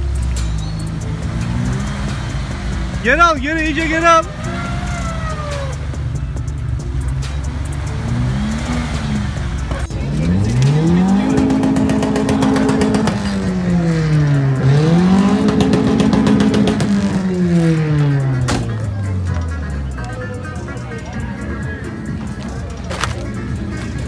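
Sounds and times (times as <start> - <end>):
engine revving hard: 0.0 - 6.1, 6.8 - 18.8
off-road vehicle engine running: 0.0 - 24.0
rapid ticking: 0.0 - 24.0.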